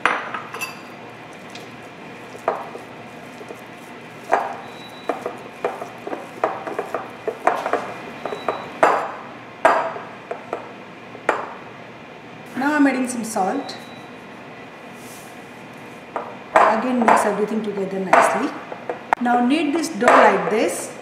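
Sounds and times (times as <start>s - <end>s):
dough knocking against glass bowl: 2.4s - 10.6s.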